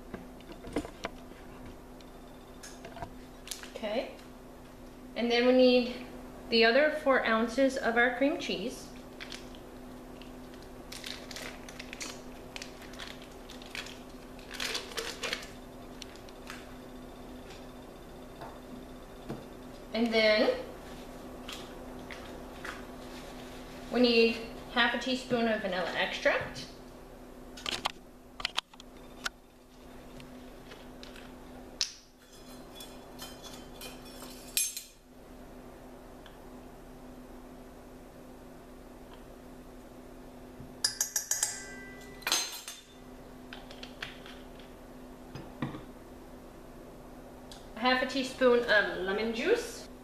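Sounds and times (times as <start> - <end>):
steady low hum: 0.0 - 50.0
wrapper crinkling: 10.2 - 16.6
low hum: 12.6 - 24.7
metal spoons clinking: 40.8 - 43.0.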